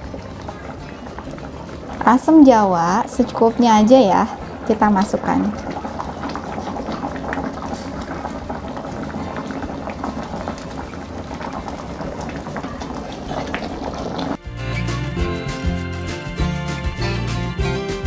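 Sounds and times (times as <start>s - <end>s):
background music: 0.0s - 6.6s, 14.1s - 18.0s
curry bubbling in a pan: 0.0s - 14.4s.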